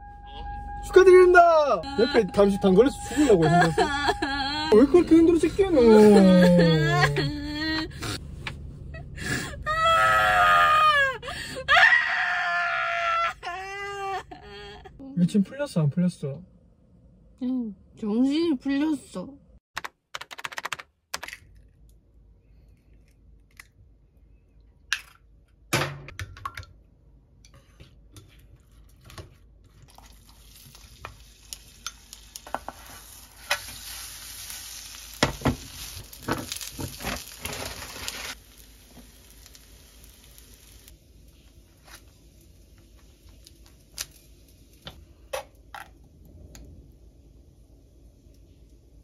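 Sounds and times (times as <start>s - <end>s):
food sizzling in a frying pan: 29.9s - 45.0s.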